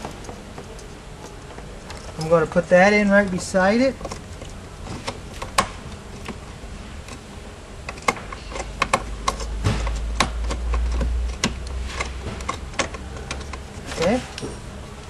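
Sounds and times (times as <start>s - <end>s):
circuit breaker clicks and taps: 7.9s - 11.8s.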